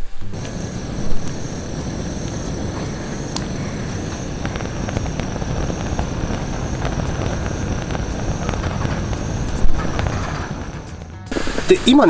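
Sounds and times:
electric fan blowing: 0.0 - 12.0
gas burner rumbling: 0.0 - 12.0
faint ticks: 2.2 - 10.2.

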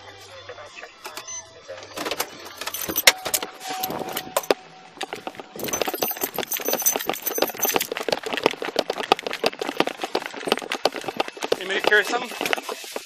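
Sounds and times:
gear clattering and rustling: 4.2 - 13.0.

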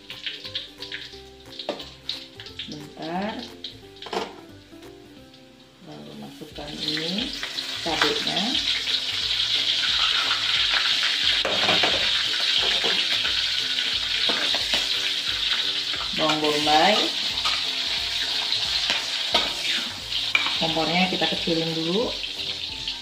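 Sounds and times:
garlic sizzling in hot oil: 0.0 - 23.0
metal spatula scraping wok: 6.8 - 23.0.

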